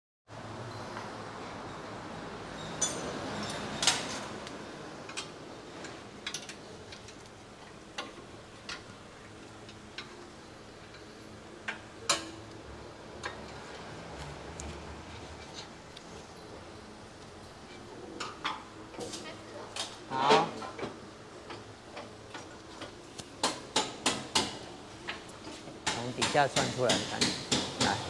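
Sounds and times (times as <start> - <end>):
workshop hum: 0.4 - 28.0
metal tools clinking and clanking: 2.6 - 4.3.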